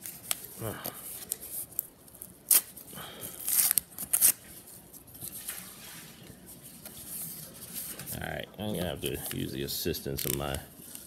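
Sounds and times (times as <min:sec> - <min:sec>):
paper envelope ripping: 0:03.4 - 0:04.5, 0:10.1 - 0:11.0
envelope crinkling and rustling: 0:10.1 - 0:11.0.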